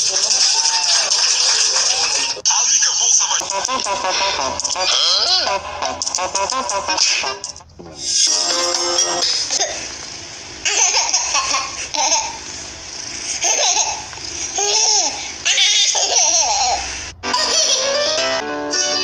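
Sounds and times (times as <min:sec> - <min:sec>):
infant laughing: 0:03.2 - 0:10.0, 0:10.6 - 0:18.1.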